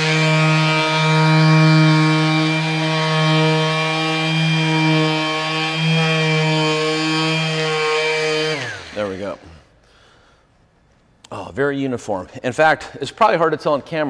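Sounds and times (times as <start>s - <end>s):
sander motor hum winding down: 0.0s - 9.6s.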